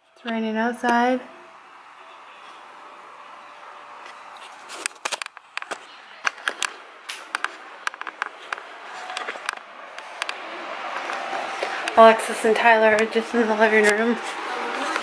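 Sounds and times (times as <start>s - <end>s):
rain falling: 1.4s - 15.0s
sharp clicks and taps: 4.8s - 12.0s.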